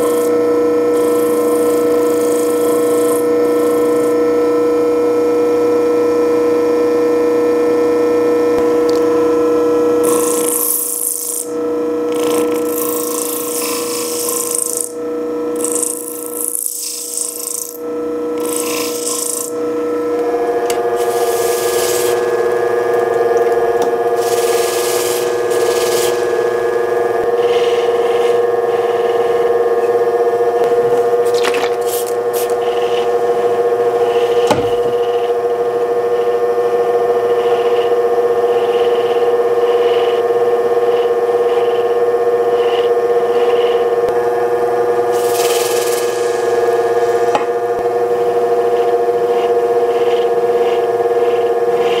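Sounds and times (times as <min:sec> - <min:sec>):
stone scraping on spinning wheel: 0:00.0 - 0:04.2, 0:10.0 - 0:19.6, 0:20.7 - 0:23.1, 0:23.7 - 0:29.5, 0:45.1 - 0:47.8, 0:48.6 - 0:52.0
polishing wheel motor whine: 0:00.0 - 0:52.0.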